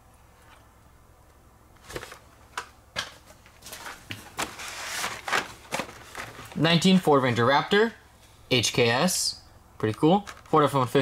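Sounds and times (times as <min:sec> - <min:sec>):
sliding rustling scrape: 0:03.3 - 0:06.6
plastic clacks: 0:09.9 - 0:10.6.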